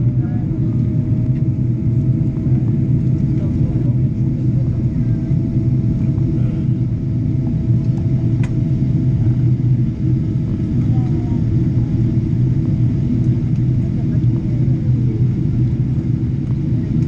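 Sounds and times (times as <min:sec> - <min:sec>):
airliner engine rumble in cabin: 0:00.0 - 0:17.0.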